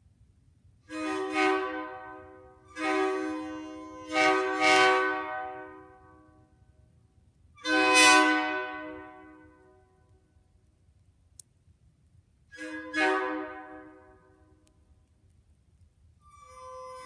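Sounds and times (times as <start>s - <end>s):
train horn blasts: 0.9s - 6.5s, 7.6s - 9.9s, 12.5s - 14.6s.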